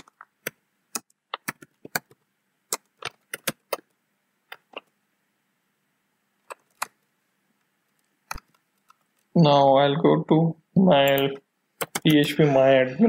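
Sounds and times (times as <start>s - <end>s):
keyboard keystrokes: 11.1s - 12.3s.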